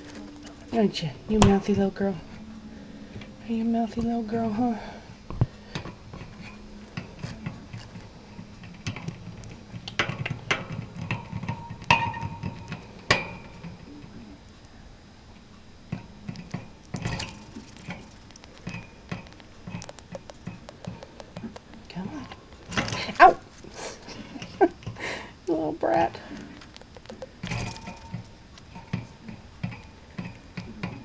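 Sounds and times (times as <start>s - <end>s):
hamster clicking and rattling in cage: 16.3s - 23.2s, 26.5s - 31.0s.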